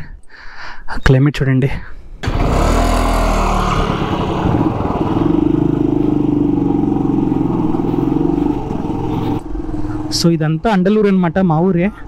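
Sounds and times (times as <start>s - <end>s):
motorcycle engine running: 2.2s - 10.2s.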